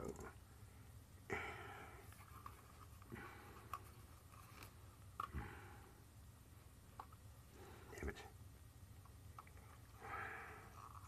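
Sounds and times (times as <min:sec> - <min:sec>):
short breaths: 0:10.0 - 0:11.0.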